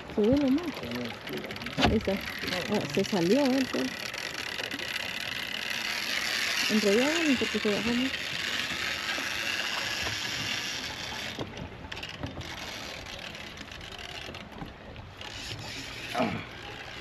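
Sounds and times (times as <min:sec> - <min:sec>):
moving river water: 0:00.0 - 0:17.0.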